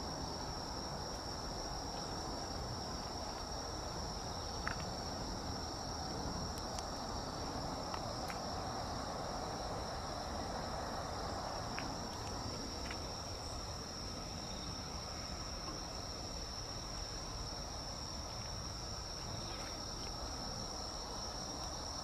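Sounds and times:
insects trilling: 0.0 - 22.0.

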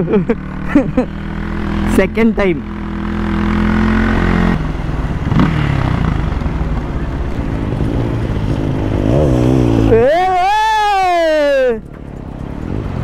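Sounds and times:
motorcycle engine running: 0.0 - 10.2.

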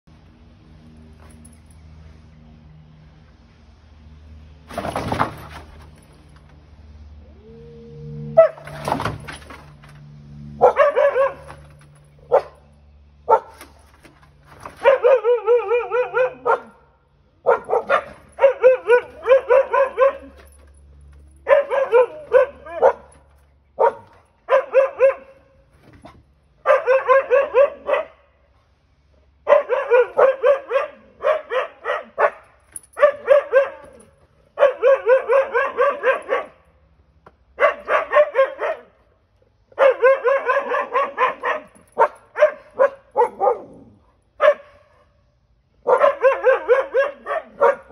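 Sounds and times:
dogs barking: 8.4 - 8.9, 10.6 - 12.7, 13.3 - 13.7, 14.7 - 20.6, 21.4 - 25.5, 26.6 - 28.3, 29.4 - 36.6, 37.6 - 39.0, 39.7 - 45.0, 45.8 - 47.9.

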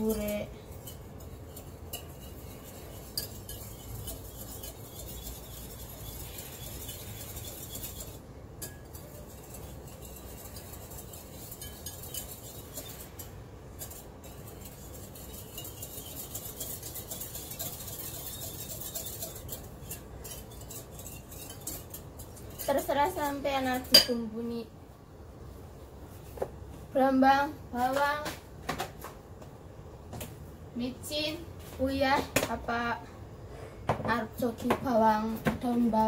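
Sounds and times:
whisk clinking in glass bowl: 0.0 - 24.2.

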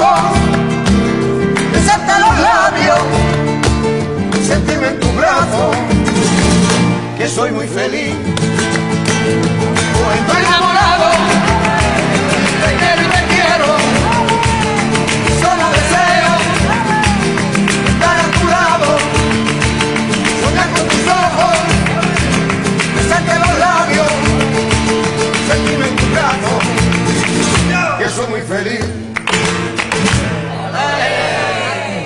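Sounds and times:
hand-clapping beat: 0.0 - 28.2, 28.8 - 30.5
guitars playing rumba: 0.0 - 32.0
voices singing along: 1.8 - 3.3, 9.9 - 17.2, 30.4 - 32.0.

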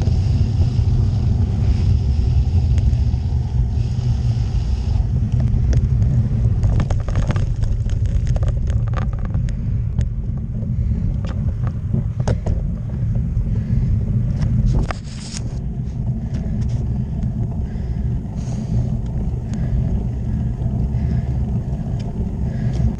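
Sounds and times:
tyres on wet tarmac: 0.0 - 22.9
wind buffeting microphone: 0.0 - 22.9
clicks and rattles: 5.3 - 13.2.

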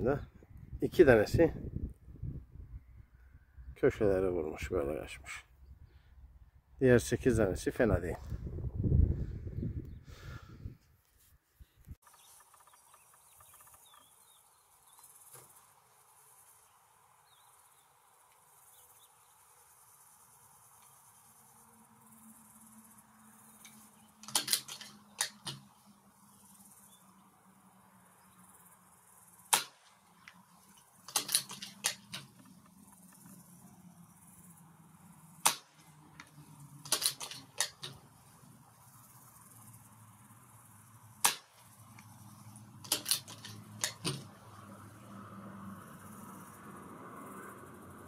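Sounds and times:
air rifle shots: 24.2 - 25.7, 29.5 - 30.0, 31.0 - 32.4, 35.4 - 35.8, 36.8 - 38.1, 41.2 - 41.8, 42.8 - 44.3
rifle action clicking: 24.2 - 25.7, 31.1 - 32.5, 36.8 - 38.0, 42.8 - 44.3.

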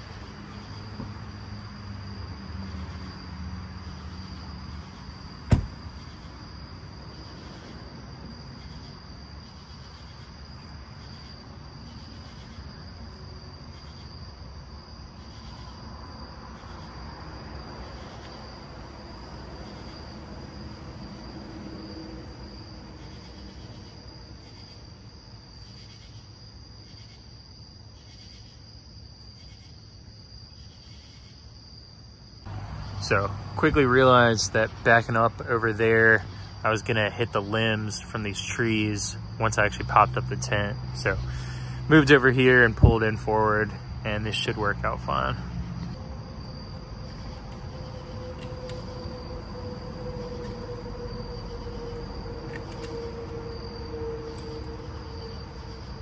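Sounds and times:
insects trilling: 0.0 - 56.0
sharp knock: 5.5 - 5.8.

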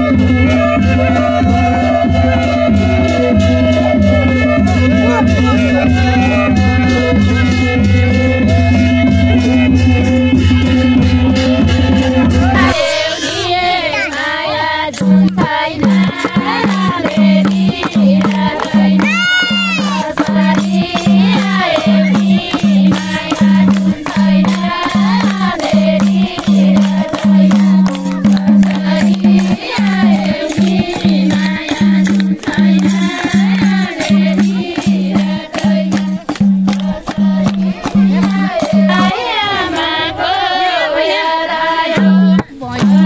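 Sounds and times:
steady drum beat: 0.0 - 39.8
winding folk melody: 12.5 - 40.9
cymbal strokes: 12.6 - 15.2.

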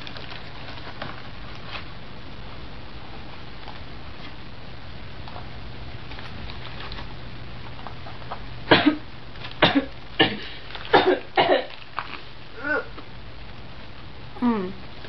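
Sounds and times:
low hum: 0.0 - 15.0
person coughing: 8.7 - 9.0, 9.6 - 11.8.

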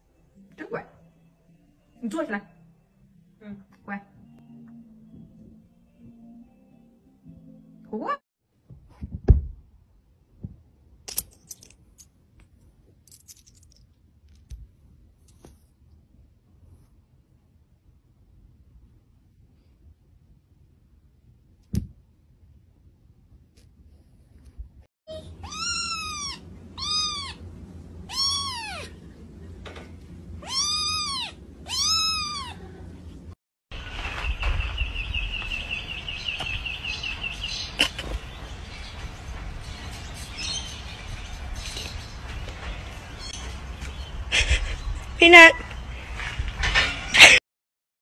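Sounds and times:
dull thump: 8.7 - 9.7
low steady hum: 9.6 - 33.4
kitten meowing: 25.1 - 27.4, 28.1 - 28.9, 30.4 - 32.7.

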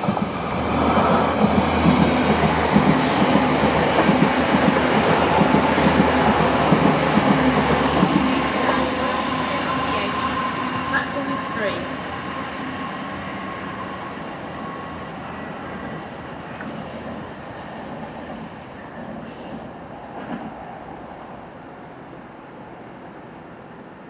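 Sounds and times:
train pulling away: 0.0 - 20.9
high wheel squeals: 12.8 - 20.3.

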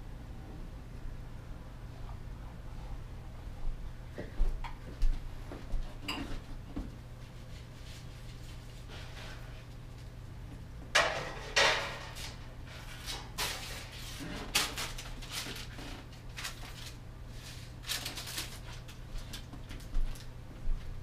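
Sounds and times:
steady low hum: 0.0 - 21.0
items clattering and knocking: 10.9 - 17.0.

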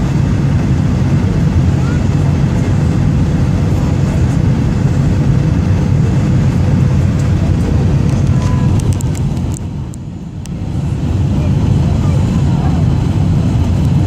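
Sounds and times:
jet engines rumbling in cabin: 0.0 - 14.0.

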